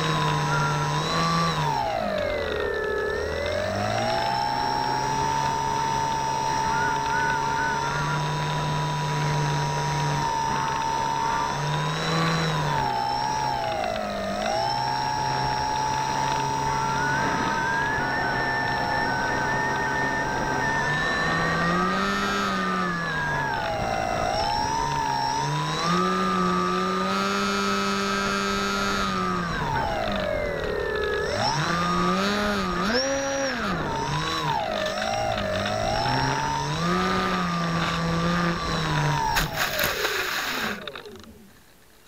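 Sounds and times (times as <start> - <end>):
model plane motor whining: 0.0 - 42.0.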